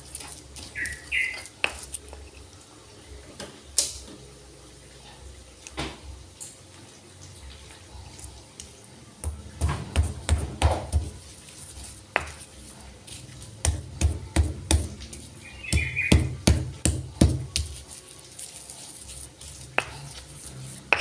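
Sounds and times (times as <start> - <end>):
stone pestle pounding in mortar: 9.2 - 11.2, 12.1 - 12.4, 13.6 - 17.8, 19.6 - 20.2.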